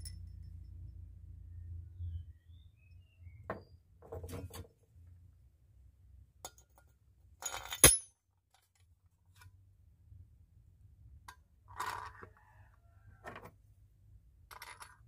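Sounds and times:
metal bolts clinking: 0:07.4 - 0:08.2.

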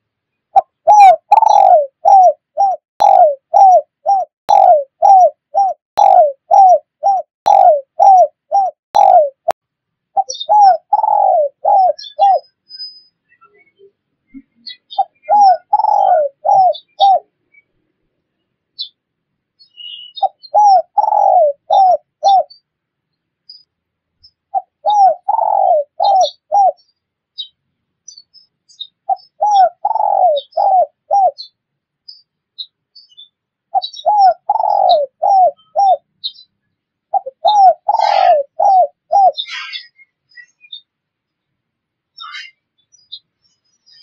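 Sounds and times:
small birds chirping: 0:00.2 - 0:19.0, 0:19.6 - 0:44.0
dove cooing: 0:00.6 - 0:09.6, 0:10.2 - 0:12.4, 0:14.9 - 0:17.3, 0:20.2 - 0:22.5, 0:24.5 - 0:26.8, 0:29.1 - 0:31.5, 0:33.7 - 0:36.1, 0:37.1 - 0:39.9.

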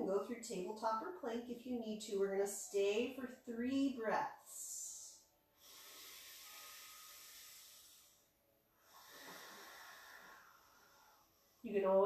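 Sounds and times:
woman breathing deeply: 0:05.2 - 0:11.8.

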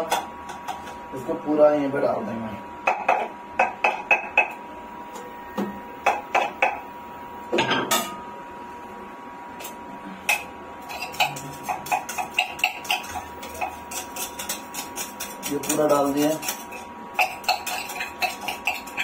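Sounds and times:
metal spoon clinking on steel cup: 0:10.3 - 0:19.0.

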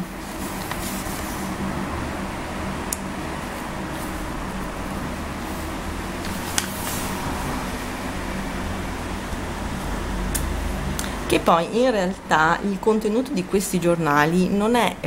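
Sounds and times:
low background hum: 0:00.0 - 0:15.0
magazine page turning: 0:00.2 - 0:01.5, 0:06.2 - 0:07.3.

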